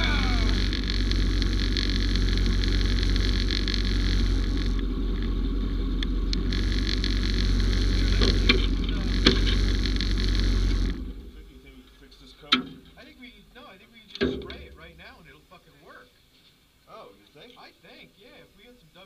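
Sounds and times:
vehicle engine drone: 0.0s - 13.6s
road noise: 0.0s - 15.7s.

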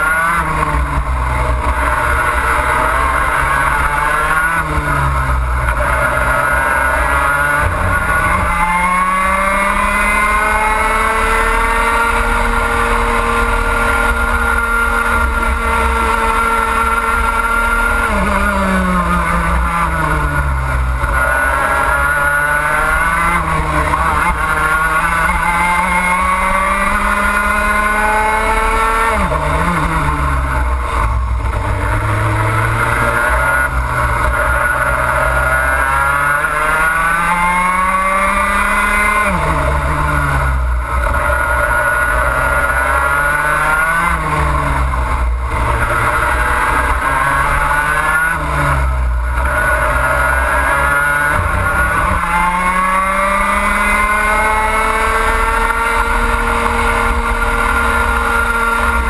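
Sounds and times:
kart engine revving: 0.0s - 59.0s.

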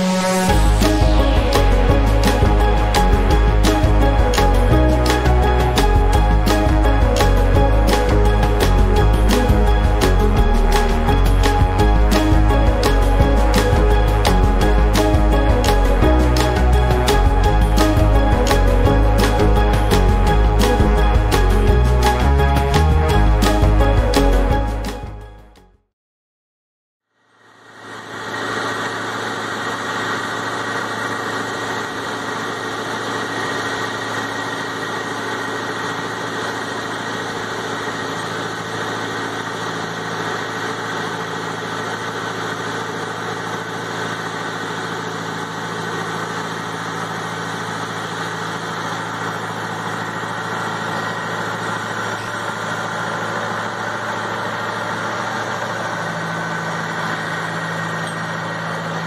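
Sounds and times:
sprayer fans whining: 0.0s - 24.9s, 27.4s - 59.0s
tractor engine: 0.0s - 25.0s, 27.6s - 59.0s
low tone: 0.0s - 25.5s, 32.4s - 59.0s.

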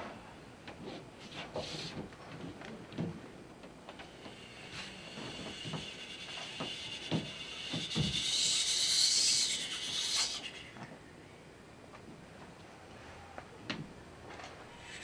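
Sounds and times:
rubbing hiss: 4.1s - 10.8s.

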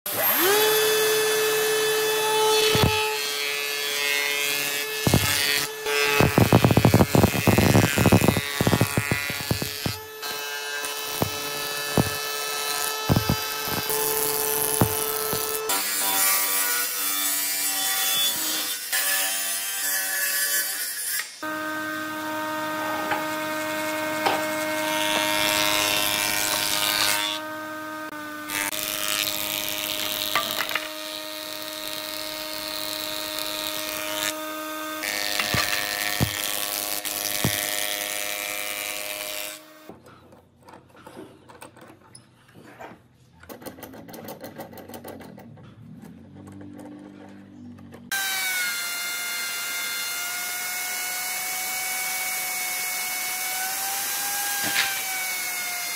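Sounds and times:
handwork sounds: 0.1s - 21.3s, 28.5s - 34.4s, 35.0s - 48.4s
table saw cutting wood: 0.1s - 39.9s, 48.1s - 55.9s
thickness planer running: 21.4s - 39.8s.

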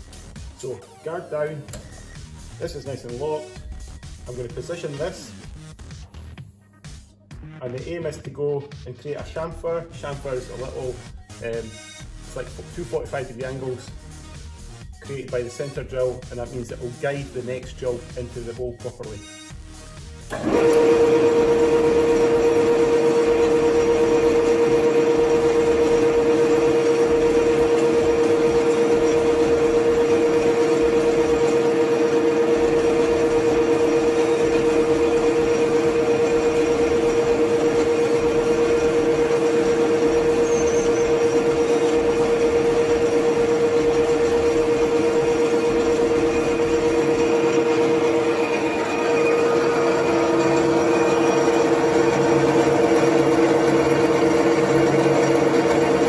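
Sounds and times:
lathe motor humming: 19.8s - 56.0s
drill wound into spinning workpiece: 20.1s - 56.0s.

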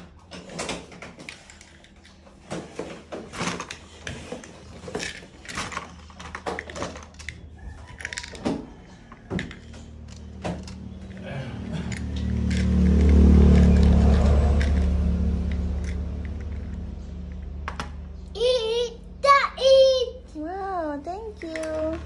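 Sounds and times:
plastic bricks clicking: 3.4s - 11.3s.

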